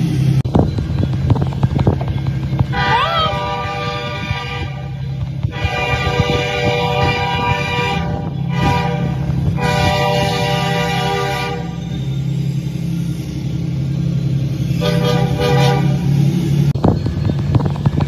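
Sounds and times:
low engine drone: 0.0s - 18.0s
locomotive air horn blasts: 2.7s - 12.1s, 14.7s - 16.2s.

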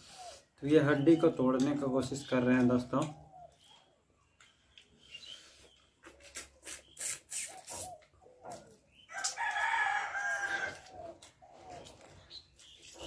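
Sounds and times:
chewing and lip smacks: 5.7s - 8.2s
rooster crowing: 9.1s - 11.0s.

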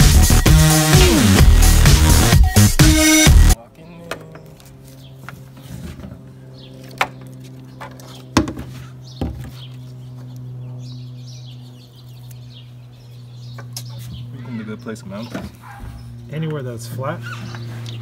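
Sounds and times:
birds chirping: 3.5s - 18.0s
steady low hum: 4.5s - 18.0s.

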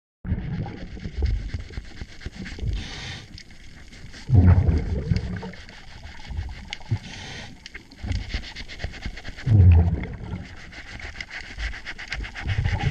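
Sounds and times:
exhaled bubbles underwater: 0.3s - 1.8s, 4.2s - 8.3s, 9.4s - 11.0s
regulator inhale hiss: 2.6s - 4.3s, 5.4s - 9.4s.

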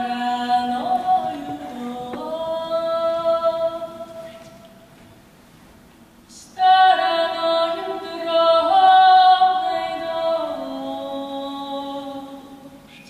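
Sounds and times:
woman singing: 0.0s - 4.6s, 6.3s - 12.8s.

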